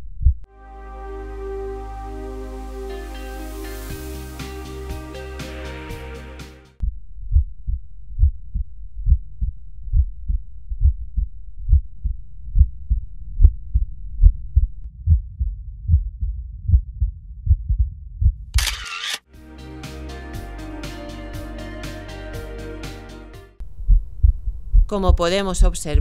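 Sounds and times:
heartbeat through stethoscope: 0:00.0 - 0:00.5, 0:06.8 - 0:18.5, 0:23.6 - 0:26.0.

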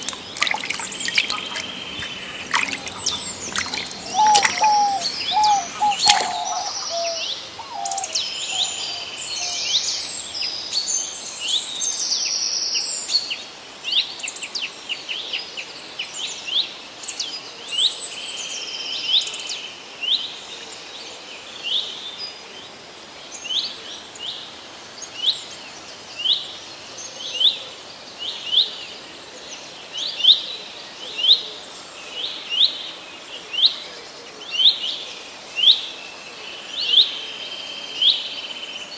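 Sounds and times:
birds chirping: 0:00.0 - 0:08.7.

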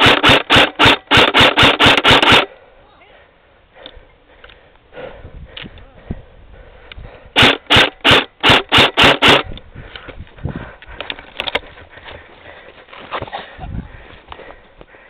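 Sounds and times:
airsoft rifle shots: 0:00.0 - 0:02.5, 0:07.4 - 0:09.5.

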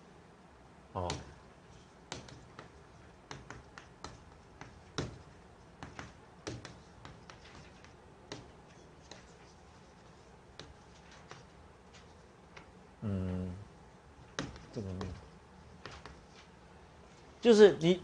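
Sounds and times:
chalk tapping on blackboard: 0:01.0 - 0:12.7, 0:14.2 - 0:16.5.

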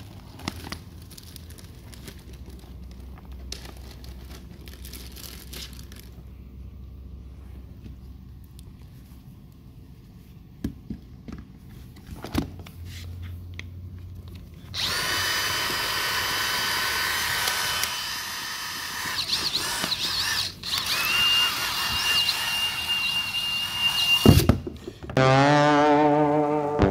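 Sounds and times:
cordless drill motor whine: 0:14.8 - 0:24.5.

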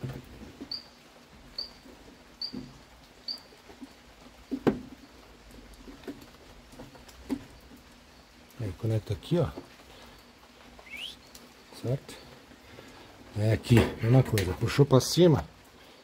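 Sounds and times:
short high chirp: 0:10.8 - 0:11.3.

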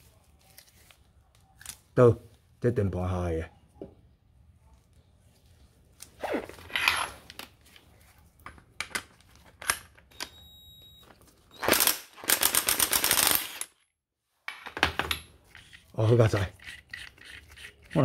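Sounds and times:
tools knocking and clattering: 0:14.5 - 0:15.7.

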